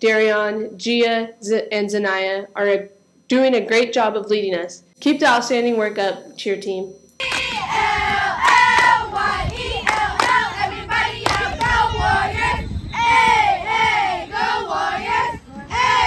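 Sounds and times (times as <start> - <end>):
sharp claps: 7.2 - 7.6, 8.4 - 9.0, 9.8 - 10.4, 11.2 - 11.8
girls chanting a cheer: 7.2 - 16.0.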